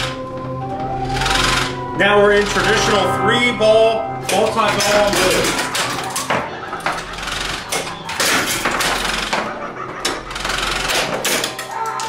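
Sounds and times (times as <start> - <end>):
pinball machine mechanical clatter: 0.0 - 3.0, 4.2 - 12.0.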